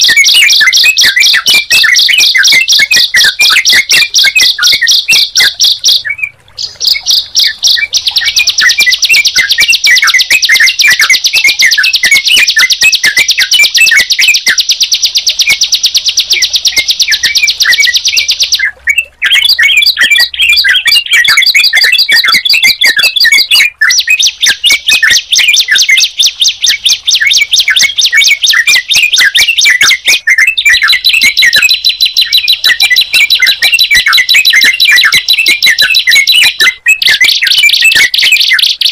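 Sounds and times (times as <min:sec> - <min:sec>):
birds chattering with rapid chirps: 0:00.0 - 0:38.9.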